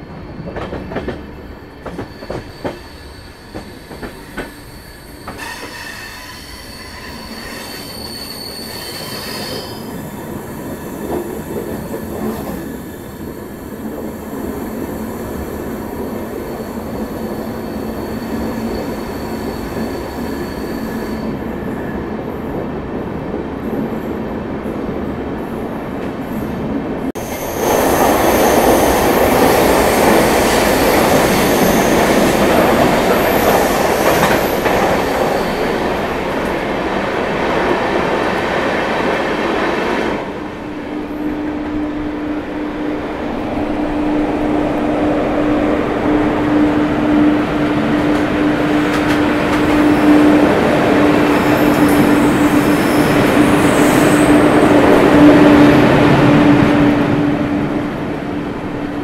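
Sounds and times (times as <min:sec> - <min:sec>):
high wheel squeal: 0:01.6 - 0:11.7, 0:15.0 - 0:21.5, 0:27.2 - 0:36.1, 0:49.6 - 0:56.3
train rumble: 0:25.8 - 0:59.0.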